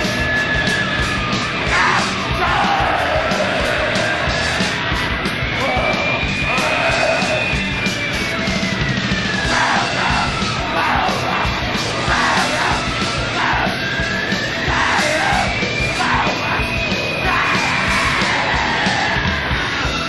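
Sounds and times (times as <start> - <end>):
distorted noise music: 0.0 - 20.0
high whine: 0.0 - 20.0
person yelling vocals: 5.6 - 7.5, 9.5 - 13.8, 14.7 - 19.6.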